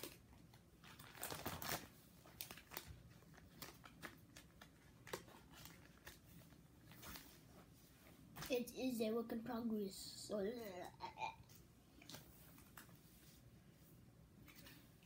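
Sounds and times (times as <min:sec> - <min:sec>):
plastic sleeve pages crinkling: 0:00.0 - 0:07.5, 0:12.0 - 0:13.2.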